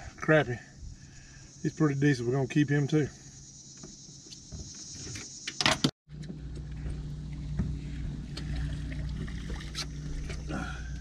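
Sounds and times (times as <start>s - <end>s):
outboard motor humming: 6.1s - 11.0s.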